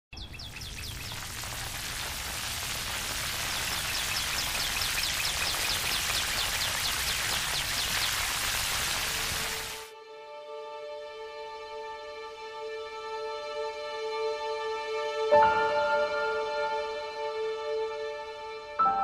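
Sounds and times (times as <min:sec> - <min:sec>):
steady high hiss: 0:00.4 - 0:09.9.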